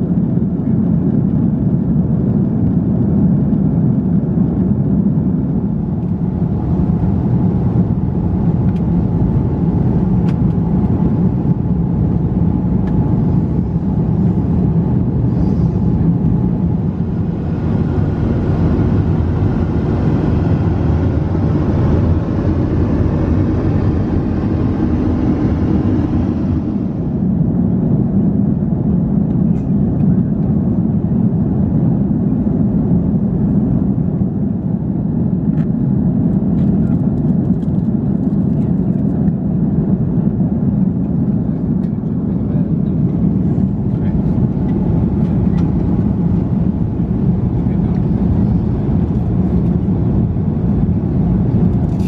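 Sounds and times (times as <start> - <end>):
aircraft engines droning: 0.0 - 52.0
rushing airflow: 4.8 - 29.9.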